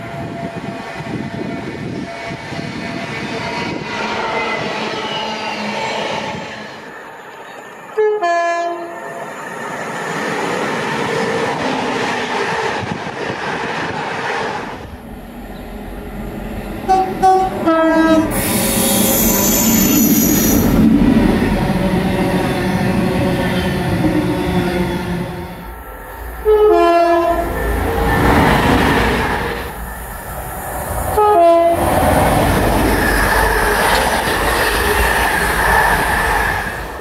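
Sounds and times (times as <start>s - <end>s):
train rumble and wheel noise: 0.0s - 37.0s
two-tone train horn: 7.9s - 9.0s, 16.8s - 18.4s, 26.4s - 27.6s, 31.2s - 31.9s.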